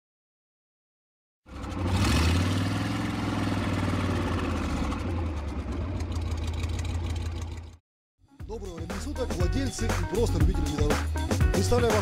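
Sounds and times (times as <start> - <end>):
vehicle engine revving: 1.5 - 7.8.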